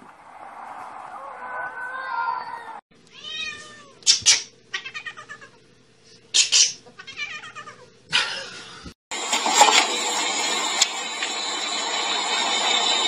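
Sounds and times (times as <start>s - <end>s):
cat meowing and yowling: 1.2s - 4.0s, 7.0s - 7.8s.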